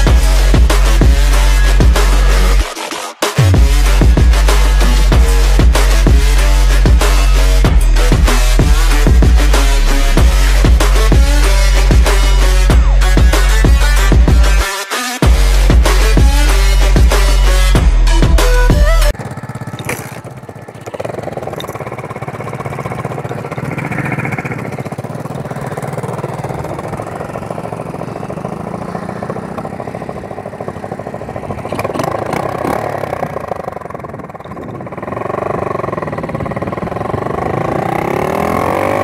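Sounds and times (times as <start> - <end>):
motorbike engine revving: 3.4 - 14.6, 15.2 - 39.0.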